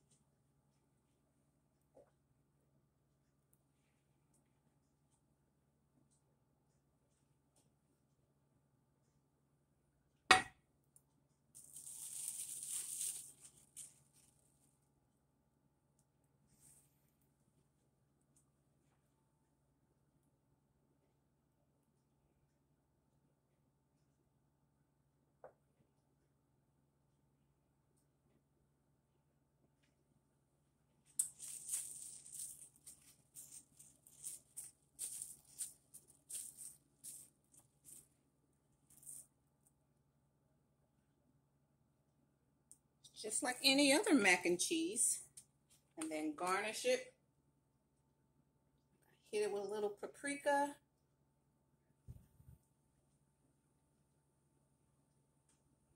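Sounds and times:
hissy shaking or rustling: 11.6 - 14.3, 31.2 - 38.0.

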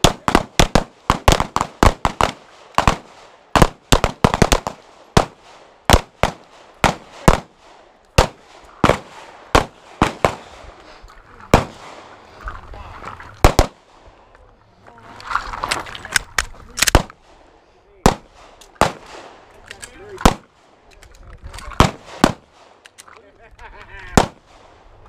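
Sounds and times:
pistol shots: 0.0 - 10.6, 13.4 - 13.8, 16.8 - 17.2, 18.0 - 19.4, 20.2 - 20.5, 21.8 - 22.8, 24.2 - 24.5.

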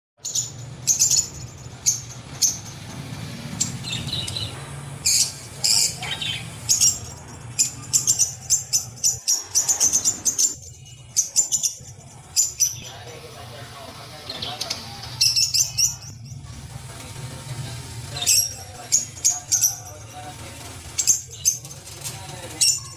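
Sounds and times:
small birds chirping: 0.2 - 22.9.

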